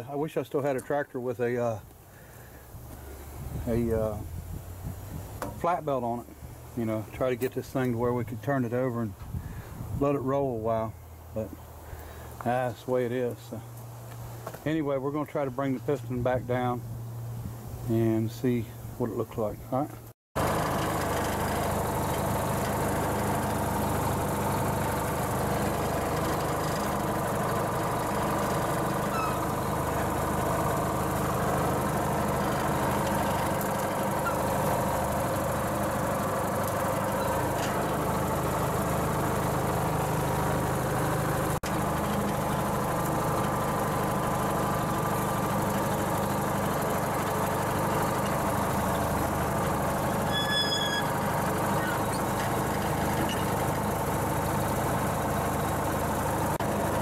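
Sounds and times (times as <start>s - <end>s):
engine idling: 20.4s - 57.0s.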